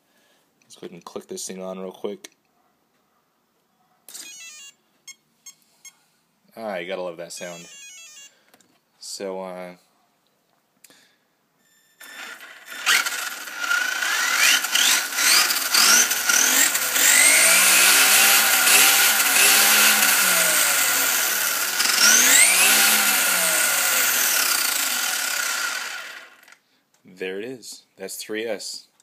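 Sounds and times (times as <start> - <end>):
electric motor whining: 12.0 - 26.6.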